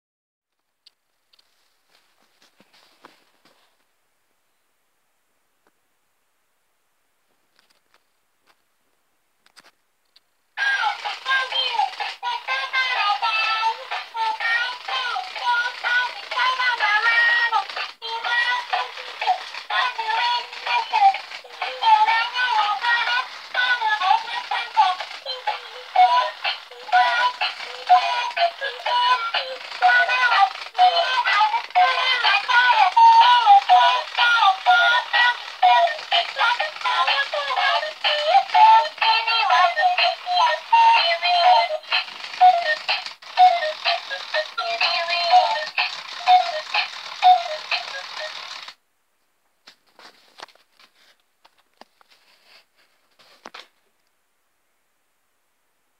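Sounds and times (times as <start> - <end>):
toy singing pop song: 10.6 - 48.8.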